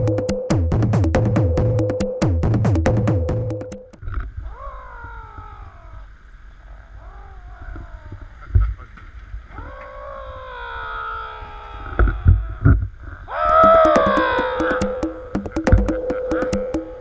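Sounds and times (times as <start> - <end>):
wailing tones sliding down: 9.5 - 17.0.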